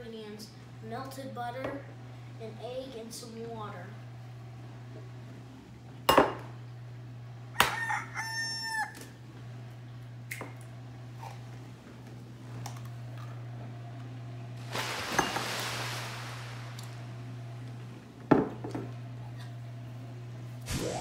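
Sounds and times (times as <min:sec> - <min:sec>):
water pouring into bowl: 0:14.6 - 0:17.1.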